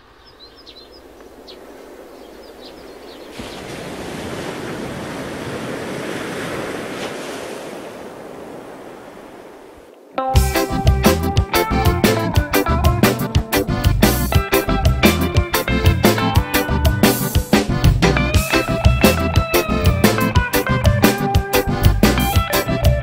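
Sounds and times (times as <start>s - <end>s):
rushing surf sound: 0.0s - 13.7s
sega music with a beat: 10.2s - 23.0s.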